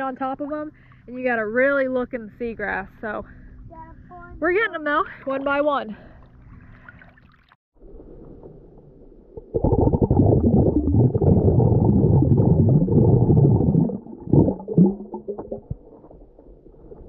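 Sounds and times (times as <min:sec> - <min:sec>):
muffled underwater gurgling: 0:09.4 - 0:17.0.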